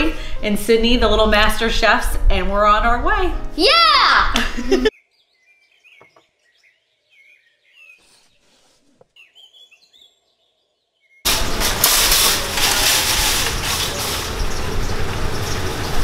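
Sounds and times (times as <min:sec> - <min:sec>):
faint birds chirping: 0:04.9 - 0:11.3
loud steady outdoor noise: 0:11.3 - 0:16.0.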